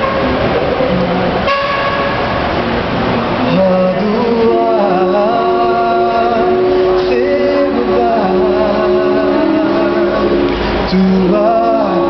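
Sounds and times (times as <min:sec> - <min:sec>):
male voices singing in harmony: 0:03.4 - 0:12.0.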